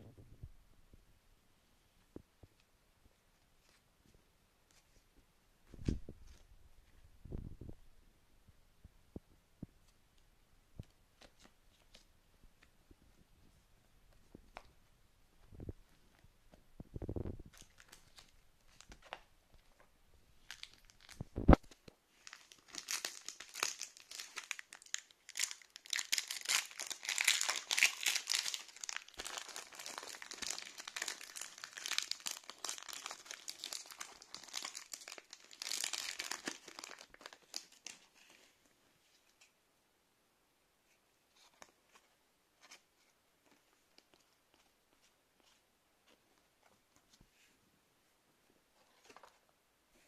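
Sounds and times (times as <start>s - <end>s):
foil wrapper tearing and crinkling: 22.2s - 37.9s.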